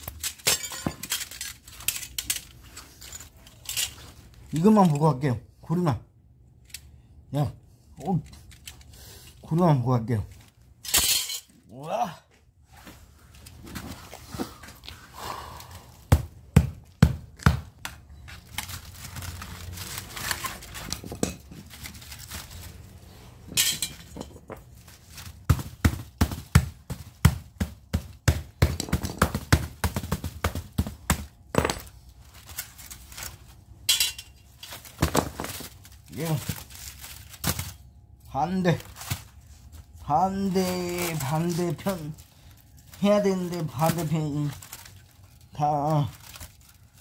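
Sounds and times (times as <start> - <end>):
metallic clinks and knocks: 23.5 - 24.7, 33.9 - 35.6.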